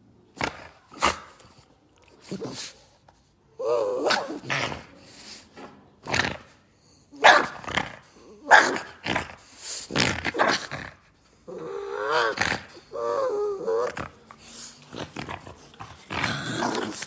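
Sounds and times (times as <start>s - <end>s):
dog growling: 7.6s - 17.0s.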